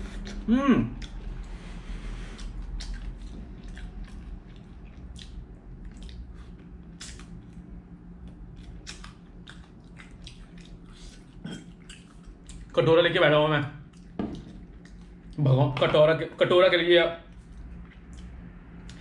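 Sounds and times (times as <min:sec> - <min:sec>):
chewing: 0:02.2 - 0:07.6, 0:08.2 - 0:12.8, 0:13.8 - 0:15.4.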